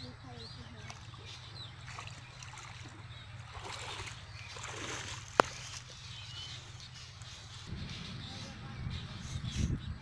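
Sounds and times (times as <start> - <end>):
water sloshing and splashing: 0.1 - 7.5.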